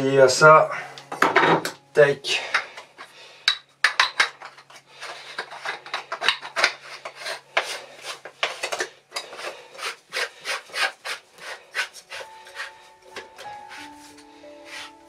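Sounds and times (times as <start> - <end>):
metal gun rasping strokes: 9.2 - 15.0.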